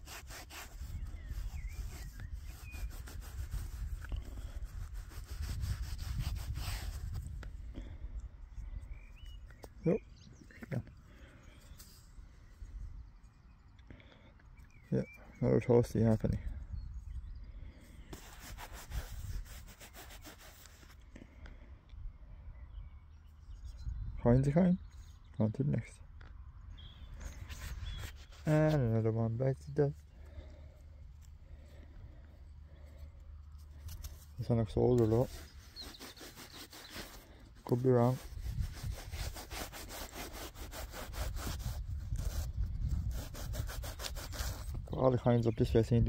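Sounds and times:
fingers scraping soil off coin: 0.0s - 7.9s, 18.1s - 21.0s, 27.2s - 30.5s, 32.8s - 44.9s
handling noise rubbing and rustling: 0.0s - 8.0s, 9.2s - 12.2s, 18.0s - 21.0s, 27.1s - 45.7s
faint bird chirps: 0.8s - 3.2s, 8.4s - 18.2s, 22.0s - 26.0s, 26.6s - 38.2s.

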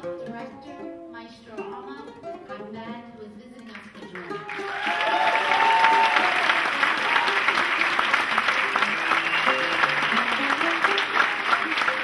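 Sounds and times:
plucked oud melody: 0.0s - 3.2s
applause: 3.7s - 12.0s.

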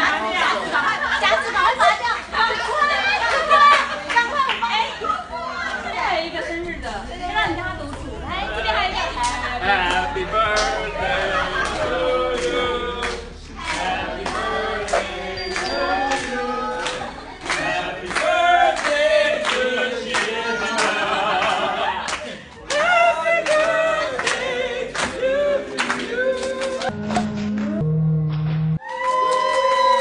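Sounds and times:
group singing: 6.6s - 27.8s
rhythmic hand clapping: 7.8s - 27.8s.

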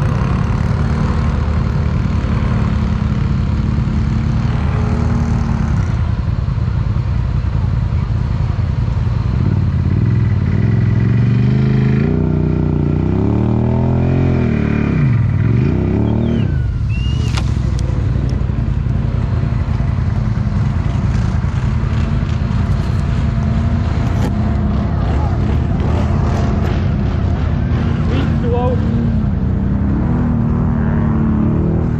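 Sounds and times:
atv engine revving: 0.0s - 6.7s, 8.4s - 31.9s
brief high squeak: 16.2s - 17.6s.

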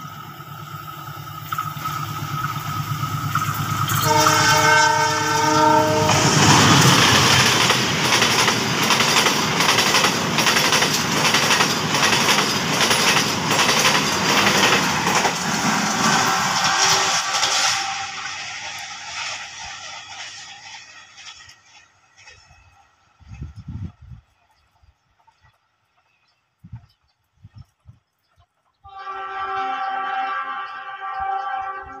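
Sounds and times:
train horn: 3.8s - 7.2s, 15.7s - 18.6s, 28.8s - 32.0s
train wheels clattering over rail joints: 6.4s - 23.5s.

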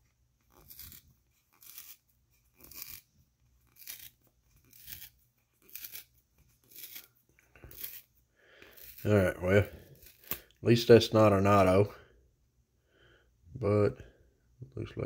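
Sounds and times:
cardboard being ripped by hand: 0.5s - 2.0s.

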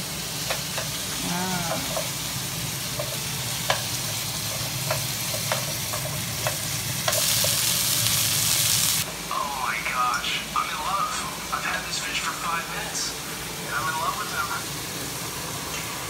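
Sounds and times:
food sizzling in a pan: 0.0s - 16.0s
utensil clicking against pan: 4.5s - 7.6s.

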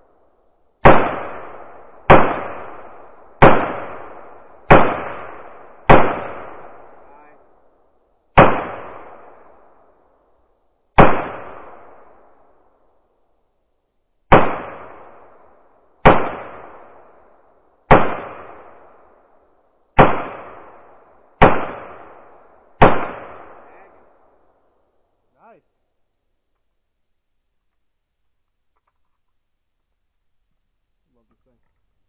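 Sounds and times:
rifle shots with echo: 0.8s - 7.7s, 8.4s - 10.0s, 11.0s - 12.6s, 14.3s - 19.4s, 20.0s - 24.6s.

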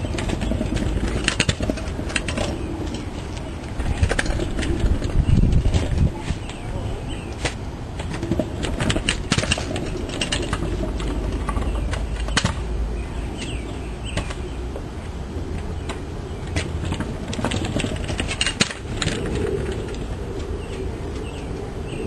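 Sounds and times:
scooter wheels clicking and rattling: 0.0s - 22.0s.

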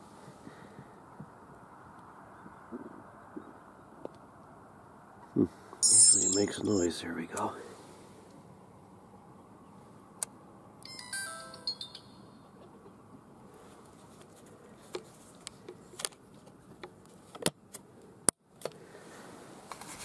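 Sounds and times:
descending electronic chime: 5.8s - 6.7s, 10.9s - 12.6s.

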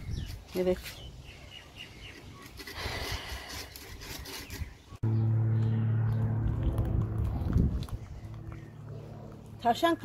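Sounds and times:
loud steady low hum: 5.0s - 10.0s.

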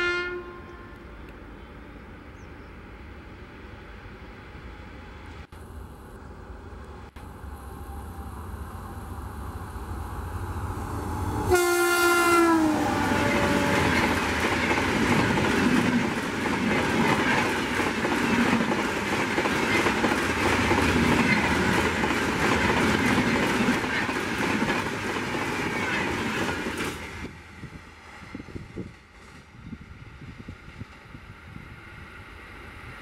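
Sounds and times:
locomotive horn: 0.0s - 1.8s, 11.0s - 14.2s
train rushing past: 1.0s - 33.0s
wheels clacking over rail joints: 13.1s - 27.1s.

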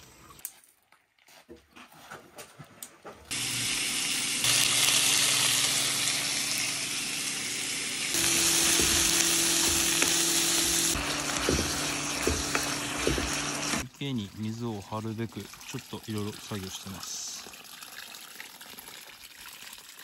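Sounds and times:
food sizzling in a frying pan: 3.3s - 13.8s.

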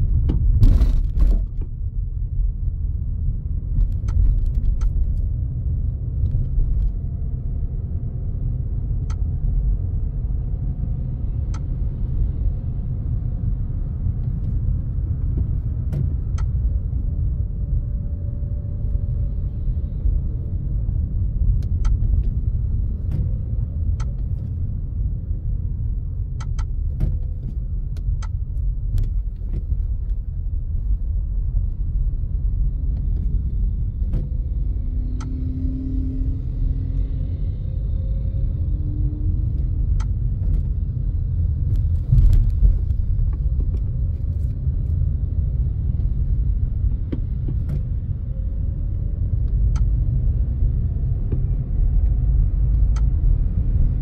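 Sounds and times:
car road rumble: 0.0s - 54.0s.

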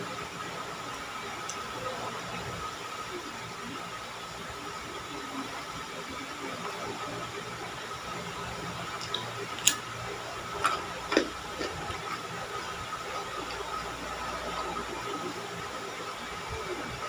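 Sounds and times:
fingers working food on plate: 10.6s - 12.4s
person chewing: 10.6s - 12.4s.

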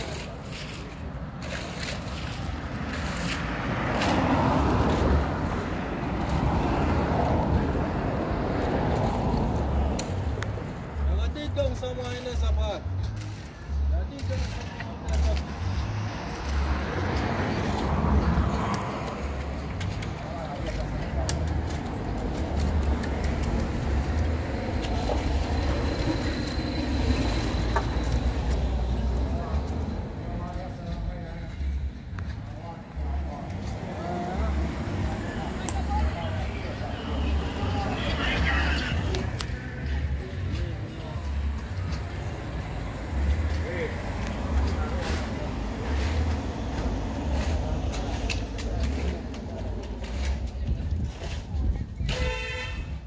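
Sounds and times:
hand tool scraping wet concrete: 0.0s - 4.3s
vehicle passing by: 0.0s - 12.6s, 13.8s - 51.7s
wind rumbling on microphone: 50.4s - 53.0s.

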